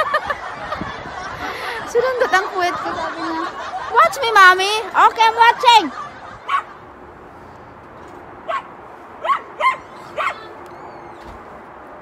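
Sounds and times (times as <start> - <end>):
dog barking and yipping: 6.5 - 6.8, 8.5 - 10.6.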